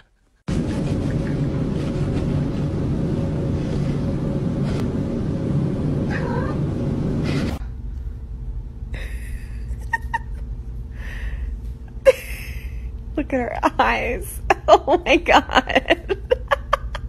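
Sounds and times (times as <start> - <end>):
cat meowing: 6.1 - 6.6.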